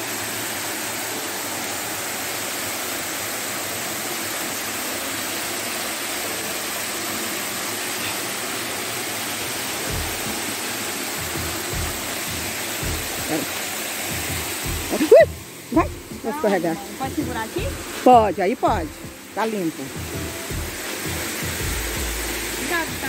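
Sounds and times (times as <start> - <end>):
waterfall rushing: 0.0 - 23.0
low thumps: 9.9 - 10.4, 11.2 - 13.3, 14.1 - 16.4, 17.0 - 19.2, 20.0 - 23.0.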